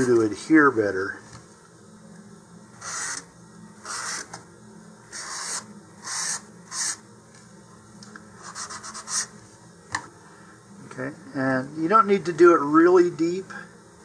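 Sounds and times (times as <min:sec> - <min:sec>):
sandpaper scratching paper tube: 0:02.8 - 0:03.2, 0:03.8 - 0:04.3, 0:05.1 - 0:07.0, 0:08.4 - 0:09.3.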